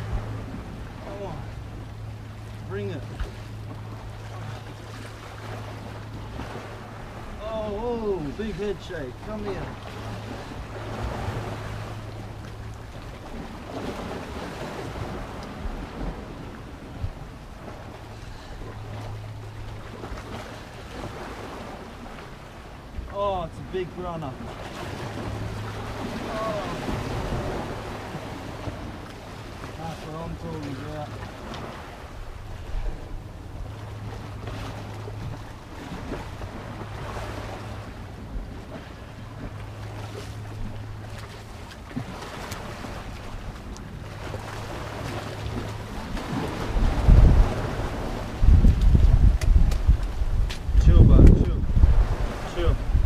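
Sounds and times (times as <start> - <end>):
low steady hum: 0.0 - 53.0
surf washing against rocks: 0.0 - 53.0
wind buffeting microphone: 41.9 - 53.0.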